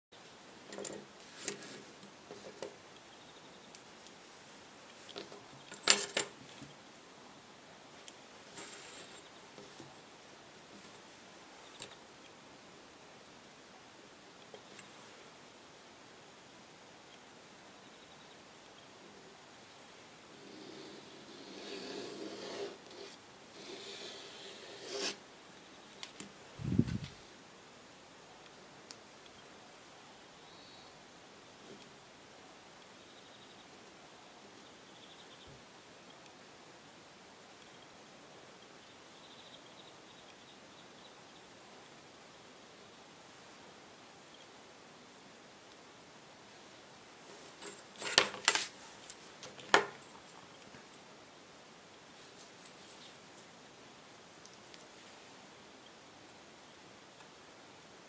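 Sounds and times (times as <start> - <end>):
pencil scraping on card: 20.7 - 25.2.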